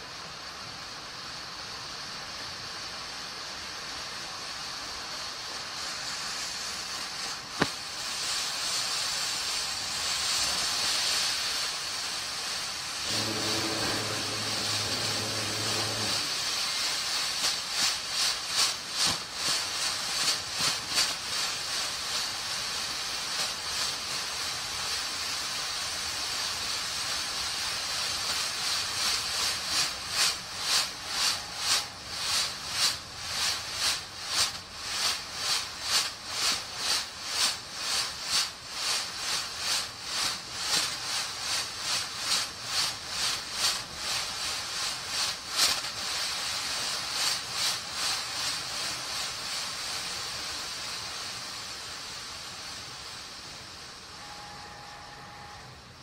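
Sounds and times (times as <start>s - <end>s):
smoke grenade hissing: 0.0s - 55.0s
low hum: 13.0s - 16.6s.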